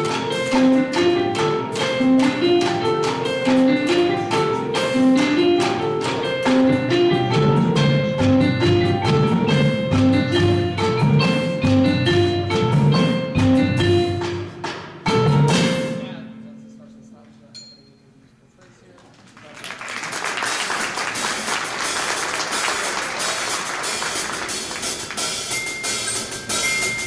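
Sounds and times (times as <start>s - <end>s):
mallet keyboard notes: 0.0s - 18.1s, 24.5s - 27.0s.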